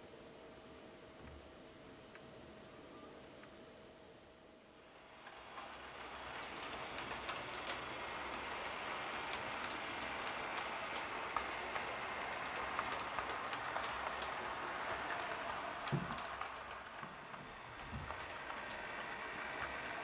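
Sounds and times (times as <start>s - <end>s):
model train rattling past: 4.8s - 20.0s.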